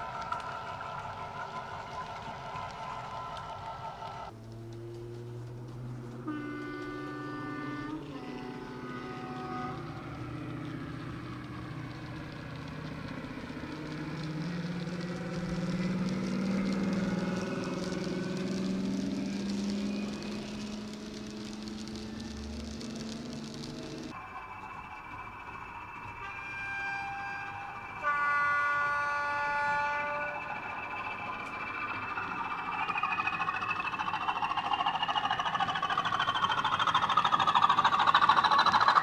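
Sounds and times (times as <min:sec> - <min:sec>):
diesel locomotive engine: 0:00.0 - 0:39.0
two-tone train horn: 0:05.8 - 0:12.4, 0:13.1 - 0:21.2, 0:25.8 - 0:31.9.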